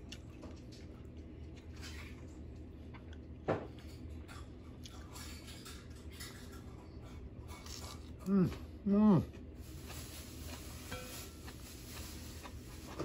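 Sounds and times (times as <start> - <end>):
wet rustling of leafy greens: 9.6 - 13.0.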